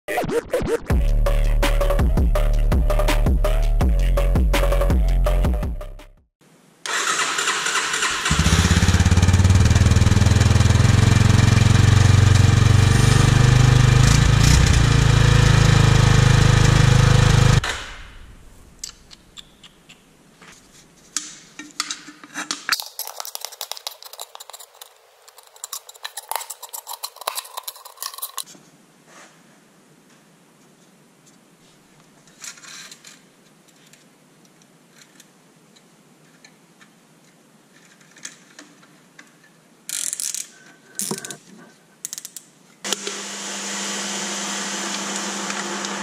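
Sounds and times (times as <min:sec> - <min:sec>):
motorcycle engine running: 0:08.3 - 0:17.6.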